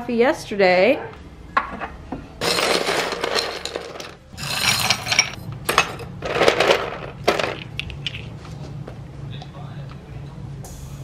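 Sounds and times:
ice cubes clattering: 2.4s - 8.2s.

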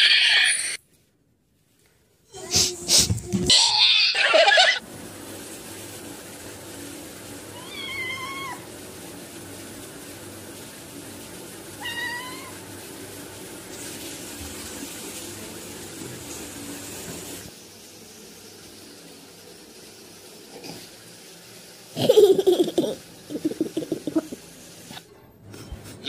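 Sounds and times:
cat meowing: 7.6s - 8.6s, 11.8s - 12.6s.

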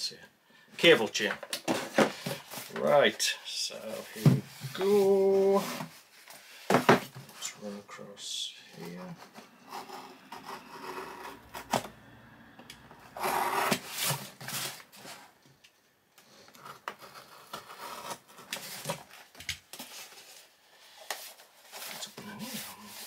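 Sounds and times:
knife scraping cardboard: 9.2s - 11.8s, 16.6s - 18.9s
cardboard rustling: 13.2s - 15.4s.

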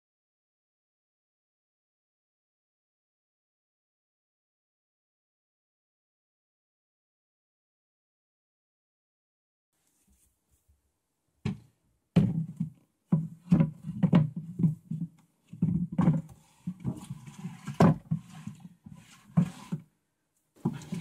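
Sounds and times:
drawer knocking and rattling: 11.4s - 19.8s, 20.6s - 21.0s.

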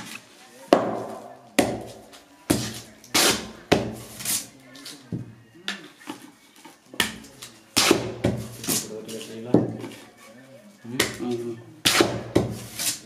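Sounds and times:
tapping and knocking on cardboard tube: 0.7s - 4.0s, 7.0s - 8.9s, 9.5s - 10.0s, 11.0s - 12.7s.

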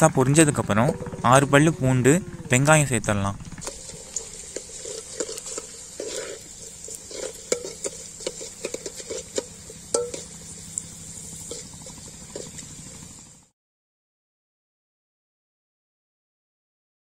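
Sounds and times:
ladle clinking and scraping pot: 3.6s - 10.5s, 11.4s - 12.6s
spices sizzling in hot oil: 3.6s - 13.5s.

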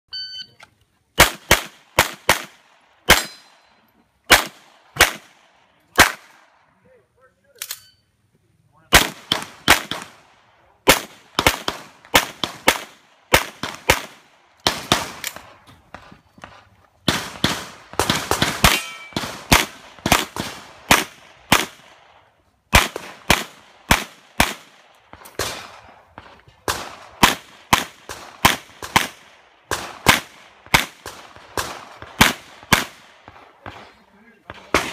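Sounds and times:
shot timer beep: 0.1s - 0.6s, 7.7s - 8.1s
handgun shots: 3.1s - 3.5s.

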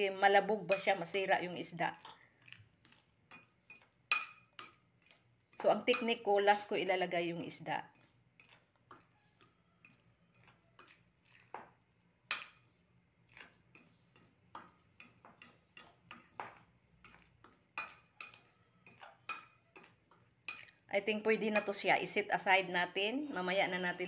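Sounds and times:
utensil clinking against ceramic bowl: 0.7s - 11.7s, 13.7s - 20.8s.

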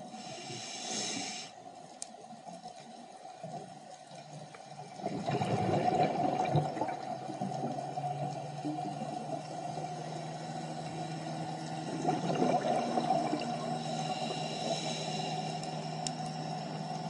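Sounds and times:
low underwater hum: 0.0s - 17.0s
gurgling water: 3.2s - 17.0s
bubbling burst: 5.1s - 7.0s.

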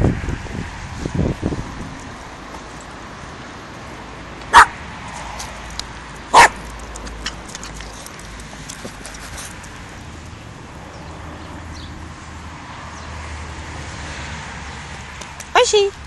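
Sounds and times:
puppy yapping: 4.5s - 4.8s, 6.3s - 6.6s.

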